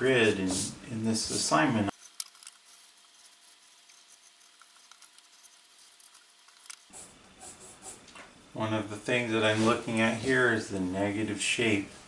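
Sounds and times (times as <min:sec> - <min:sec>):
pencils ticking and scratching: 0:01.9 - 0:06.9.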